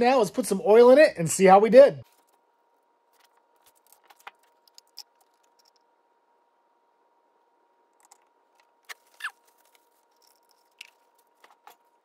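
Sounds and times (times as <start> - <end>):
faint steady hum: 0.0 - 12.0
plastic squeaks: 8.8 - 9.8.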